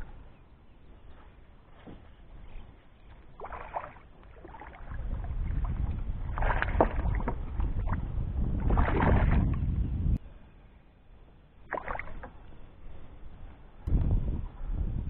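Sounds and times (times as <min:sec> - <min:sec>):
water splashing: 0:03.0 - 0:09.8, 0:11.6 - 0:12.5
low rumble: 0:04.8 - 0:10.5.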